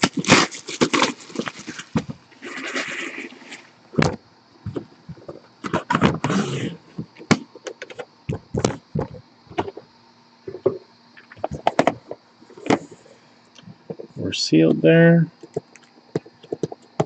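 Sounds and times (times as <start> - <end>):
box lid scraping: 4.7 - 6.8.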